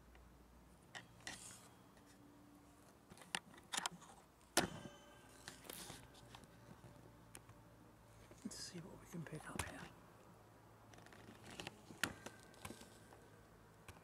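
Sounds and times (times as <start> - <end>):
metallic ring: 4.6 - 8.2.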